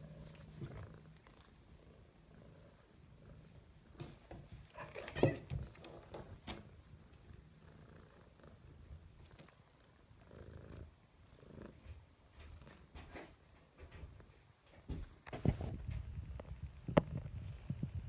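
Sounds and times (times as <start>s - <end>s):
cat purring: 0.0s - 14.4s.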